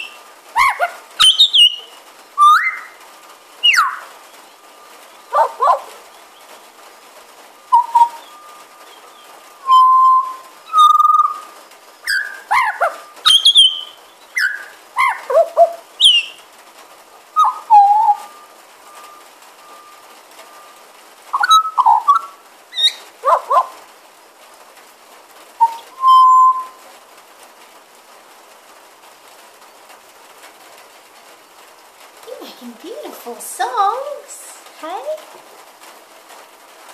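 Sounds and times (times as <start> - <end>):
bird singing whistled notes: 0.0 - 3.0, 3.6 - 5.5, 7.6 - 15.2, 16.0 - 16.4, 17.4 - 23.4, 25.6 - 26.8.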